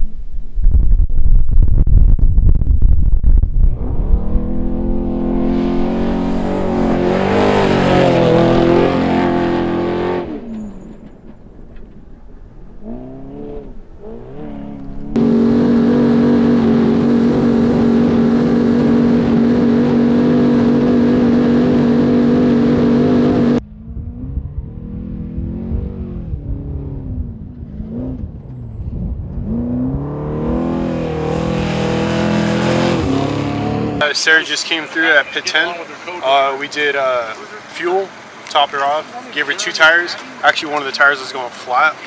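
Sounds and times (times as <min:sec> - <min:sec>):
truck engine passing at high revs: 0:03.6 - 0:38.6.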